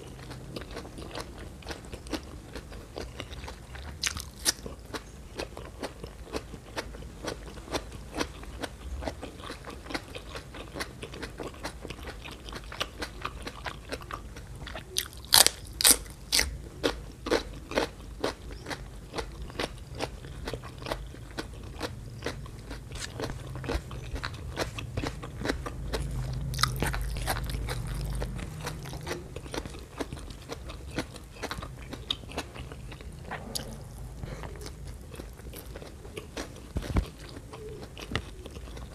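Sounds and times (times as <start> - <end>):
crisp crunching bites: 15.0 - 16.5, 20.6 - 32.8
wet mouth chewing clicks: 18.6 - 38.9.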